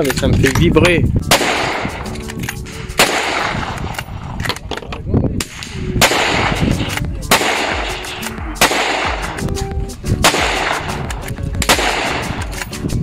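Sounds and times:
rifle shots echoing: 1.3 - 2.2, 3.0 - 4.5, 5.4 - 9.4, 10.2 - 12.6.

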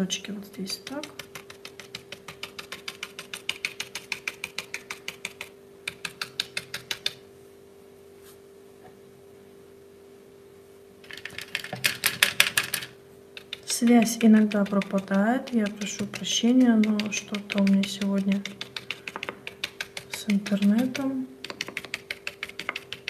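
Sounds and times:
faint steady hum: 0.0 - 23.0
paintbrush tapping on paper: 0.8 - 7.2, 11.3 - 23.0.

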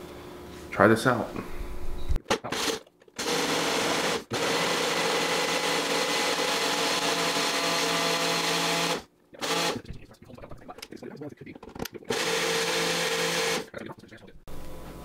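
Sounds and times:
blender motor running: 2.5 - 9.8, 12.1 - 13.7.

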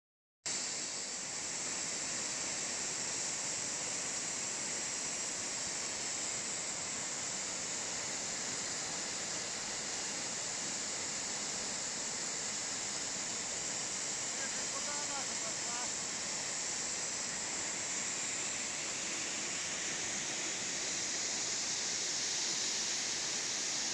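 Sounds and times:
waterfall splashing: 5.0 - 23.9.

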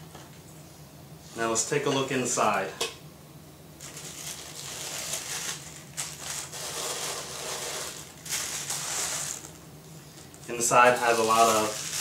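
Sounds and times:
tissue paper rustling: 3.8 - 12.0.

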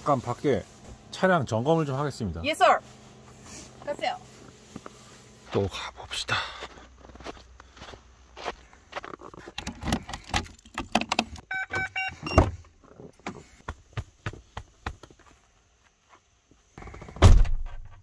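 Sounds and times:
short electronic beeps: 11.5 - 12.5.

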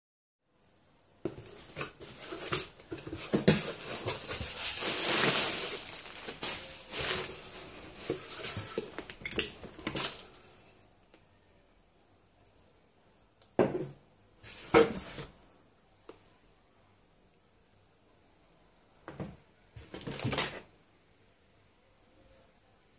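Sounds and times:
cardboard box crinkling and rustling: 1.3 - 10.3, 19.8 - 20.7.

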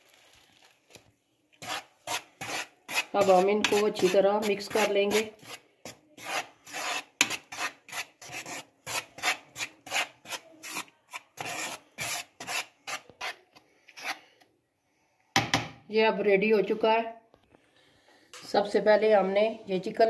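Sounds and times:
flour being stirred in a bowl: 0.0 - 14.3.

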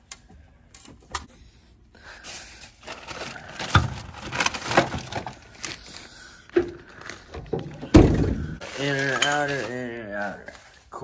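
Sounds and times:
plastic bags rustling: 2.2 - 11.0.

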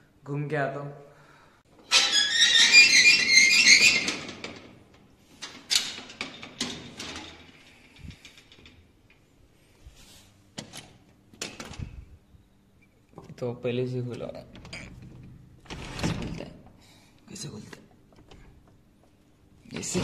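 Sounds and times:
glass door scraping rattle: 1.9 - 4.8, 14.6 - 16.4, 19.7 - 20.0.

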